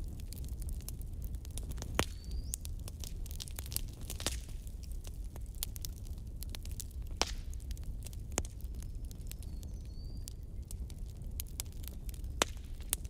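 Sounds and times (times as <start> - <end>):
wood fire crackling and popping: 0.0 - 13.0.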